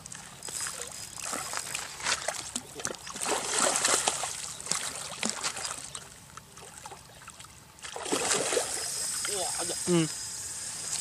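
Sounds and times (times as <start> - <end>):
fish thrashing and splashing: 0.6 - 8.9.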